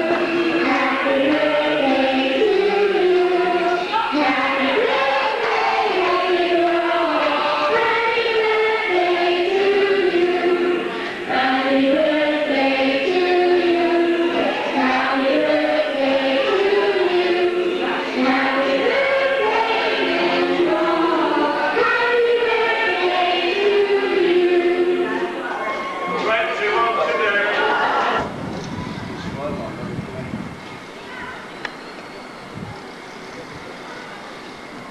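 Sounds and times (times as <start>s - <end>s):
choir singing: 0.0s - 25.7s, 26.8s - 28.3s.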